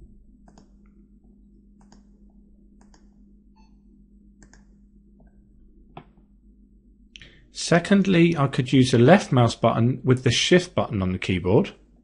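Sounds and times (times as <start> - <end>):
low hum: 0.0 - 12.0
computer mouse clicks: 0.4 - 0.9, 1.8 - 2.1, 2.8 - 3.1, 4.4 - 5.3.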